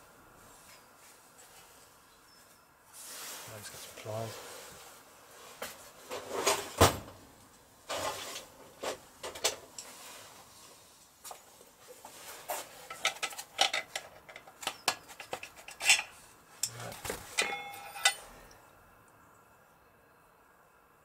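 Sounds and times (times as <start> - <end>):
pliers clinking on metal: 13.0 - 18.6
brief metallic ringing: 17.4 - 18.5.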